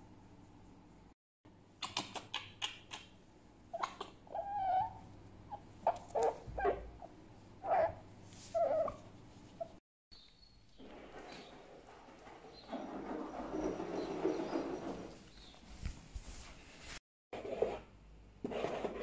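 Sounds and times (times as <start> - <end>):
fox whining calls: 3.8 - 9.0.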